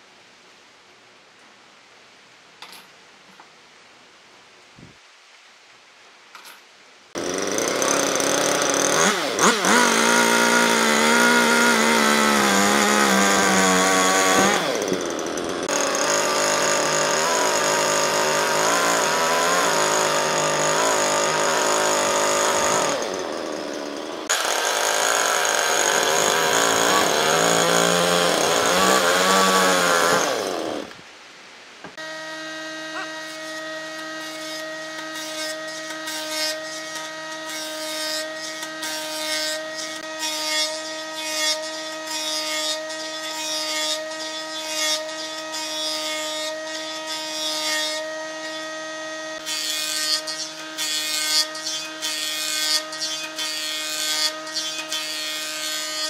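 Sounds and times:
chainsaw cutting through log: 7.2s - 31.0s, 32.0s - 56.0s
electric jointer humming: 7.2s - 31.0s, 32.0s - 42.4s.

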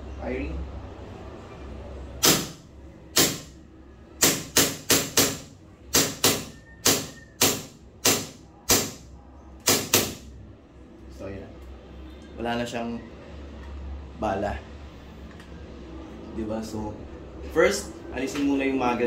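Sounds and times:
pistol shots with slide cycling: 2.2s - 3.5s.

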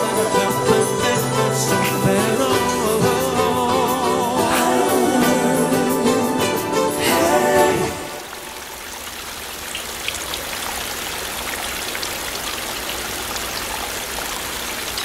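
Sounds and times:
steady rain falling: 7.0s - 15.0s.

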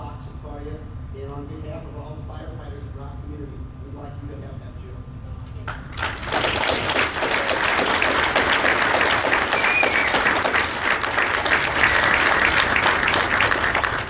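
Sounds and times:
audience applauding: 5.7s - 14.0s.

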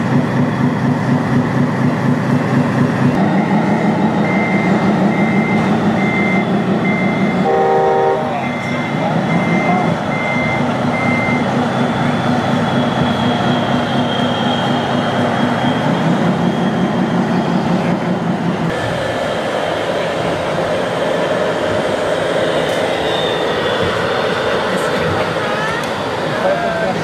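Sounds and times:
model truck engine drone: 0.0s - 27.0s
high beep: 3.3s - 12.0s.

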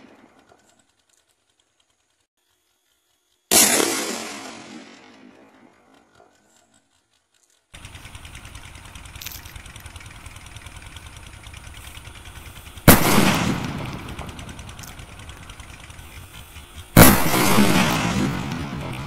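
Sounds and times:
firecracker bangs: 3.5s - 5.8s, 12.7s - 15.3s, 16.2s - 19.0s.

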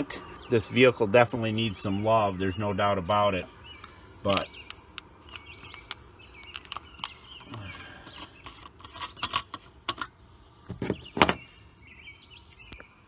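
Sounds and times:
plastic cap clicking and scraping: 4.3s - 10.2s.

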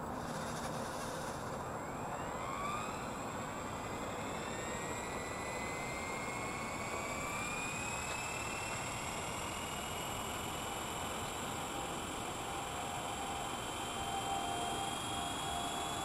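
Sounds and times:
electric motor whine rising: 0.0s - 16.0s
steady high tone: 1.9s - 16.0s
steady hiss: 3.3s - 16.0s.

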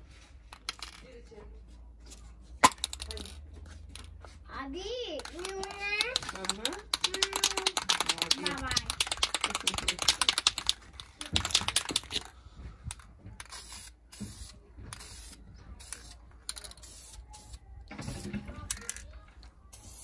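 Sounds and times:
aerosol can mixing ball rattling: 5.2s - 12.3s
short spray bursts: 13.5s - 16.1s.

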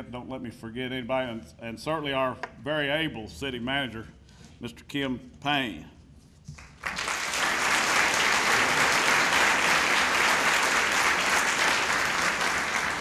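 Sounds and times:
audience applause: 6.8s - 13.0s.

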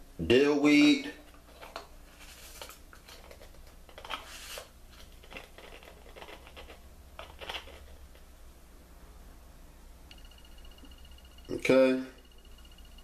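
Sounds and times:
faint low hum: 0.0s - 13.0s
spice container clicks and rattles: 5.0s - 8.2s.

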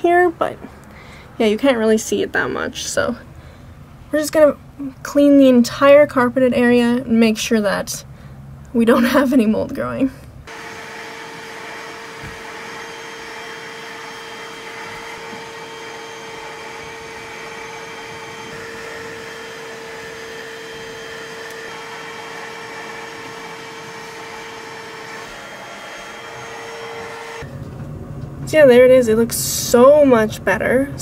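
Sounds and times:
suction rushing: 10.5s - 27.5s
carpet cleaner motor whine: 10.5s - 27.6s.

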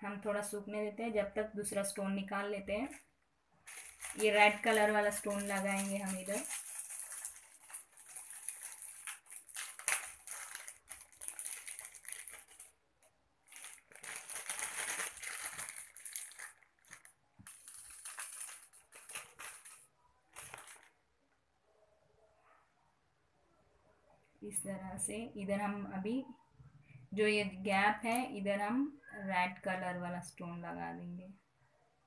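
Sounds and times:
plastic packet crinkling: 2.8s - 21.0s.

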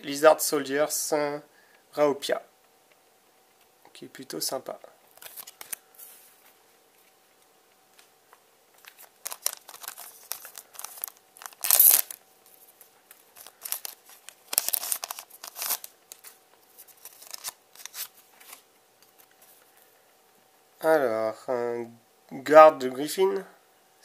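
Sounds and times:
foil wrapper crinkling and tearing: 5.1s - 5.9s, 8.8s - 12.2s, 13.3s - 18.6s.

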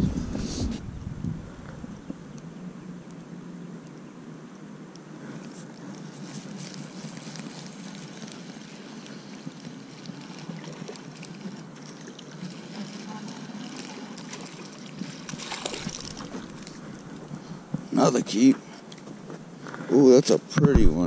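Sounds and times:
water splashing: 5.4s - 19.3s.

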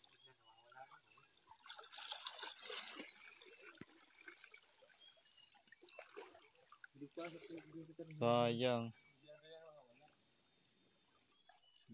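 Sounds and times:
stream water splashing: 0.0s - 10.4s
high insect buzz: 0.0s - 11.9s.

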